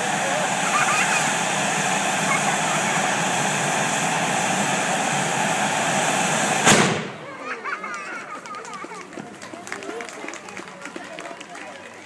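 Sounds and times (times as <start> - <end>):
firework tube hissing sparks: 0.0 - 7.1
sharp bang: 6.0 - 7.2.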